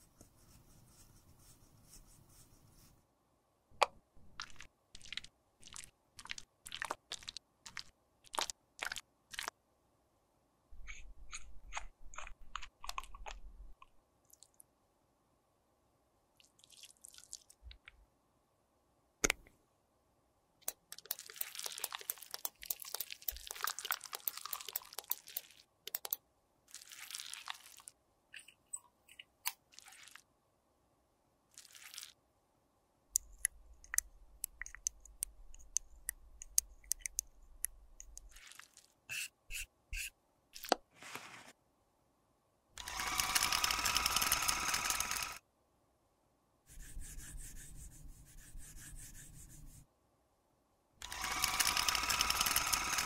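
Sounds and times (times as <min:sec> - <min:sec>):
plastic caps clicking: 0:20.6 - 0:26.2, 0:33.2 - 0:38.3.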